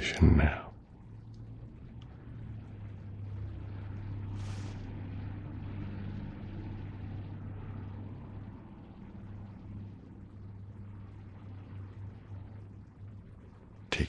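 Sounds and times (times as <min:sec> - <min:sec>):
low steady hum: 0:00.0 - 0:14.0
brief breathy hiss: 0:04.4 - 0:04.8.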